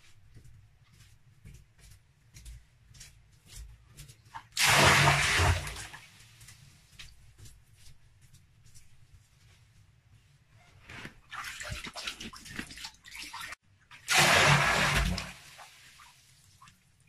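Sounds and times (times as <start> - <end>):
water splashing and sloshing: 3.5 - 7.9, 10.8 - 17.0
water gushing into a pool: 4.6 - 6.0, 14.0 - 16.1.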